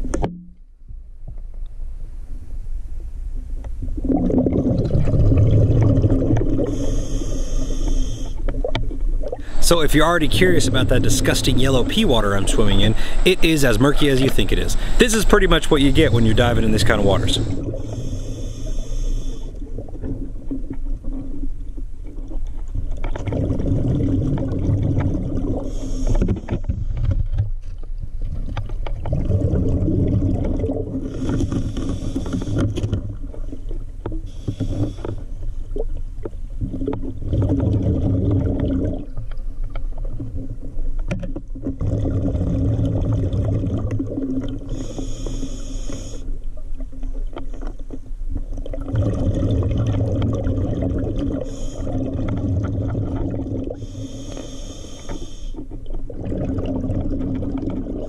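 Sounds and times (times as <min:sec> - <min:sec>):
exhaled bubbles rumbling: 0:03.4 - 0:45.2, 0:48.0 - 0:53.8, 0:55.6 - 0:58.0
regulator inhale hiss: 0:06.6 - 0:08.5, 0:12.9 - 0:13.3, 0:14.7 - 0:15.1, 0:17.4 - 0:19.7, 0:25.6 - 0:26.6, 0:31.1 - 0:32.8, 0:34.2 - 0:35.4, 0:44.7 - 0:46.5, 0:51.4 - 0:52.1, 0:53.7 - 0:55.7.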